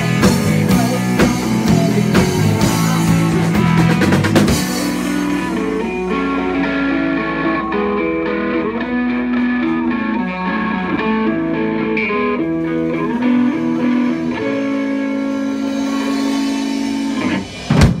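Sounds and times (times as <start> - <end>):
electric guitar notes: 0.0 - 18.0
sudden loud hit: 15.4 - 18.0.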